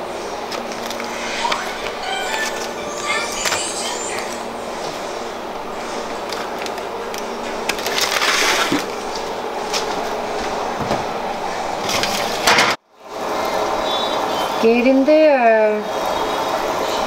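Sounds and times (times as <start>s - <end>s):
aluminium foil crinkling: 6.2s - 9.0s.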